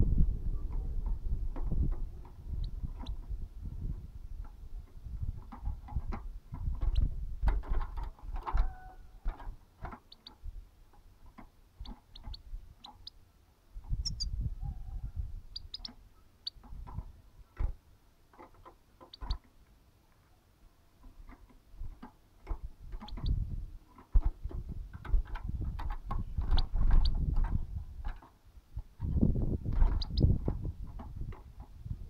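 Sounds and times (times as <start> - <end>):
clicks and knocks in cage: 5.4 - 10.1, 21.0 - 23.2, 23.9 - 28.4
goldfinch chirping: 11.8 - 13.2, 14.0 - 14.3, 15.5 - 16.6, 29.9 - 30.3.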